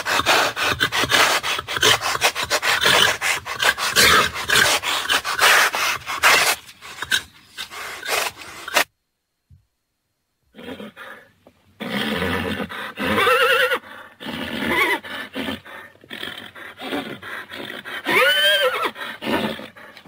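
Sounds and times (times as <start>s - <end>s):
rough noisy horse calls: 0.0s - 8.8s, 11.8s - 19.9s
horses whinnying: 11.8s - 19.8s.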